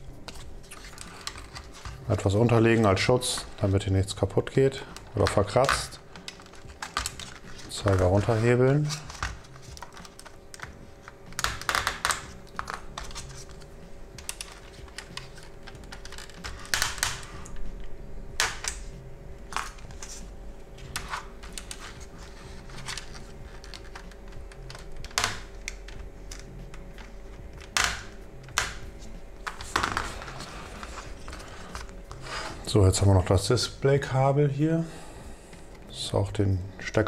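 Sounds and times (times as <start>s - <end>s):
screwdriver clicking and scraping plastic: 22.7s - 27.9s.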